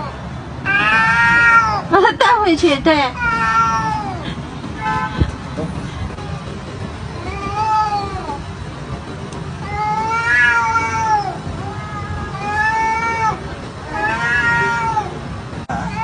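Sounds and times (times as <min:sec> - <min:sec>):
cat meowing: 0:00.0 - 0:01.9, 0:03.1 - 0:05.3, 0:07.2 - 0:08.4, 0:09.6 - 0:16.0.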